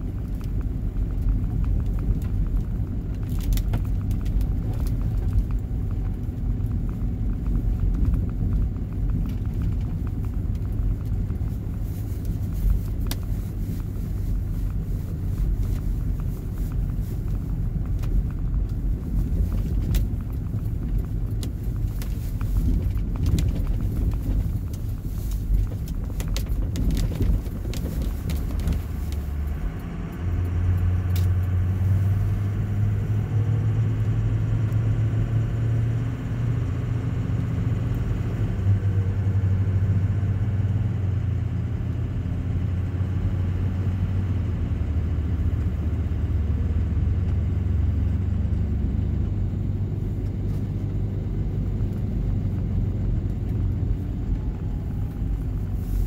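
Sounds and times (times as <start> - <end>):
car engine and road drone: 0.0 - 56.0.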